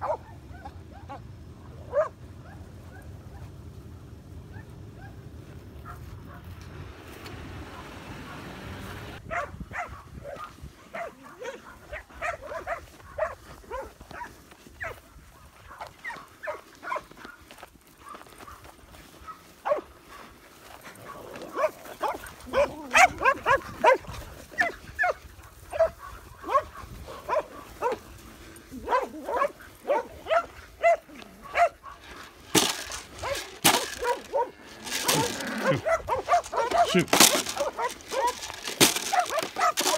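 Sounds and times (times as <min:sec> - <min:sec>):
dogs barking: 0:00.0 - 0:03.6, 0:04.4 - 0:06.6, 0:07.6 - 0:39.9
rustling noise: 0:11.7 - 0:39.9.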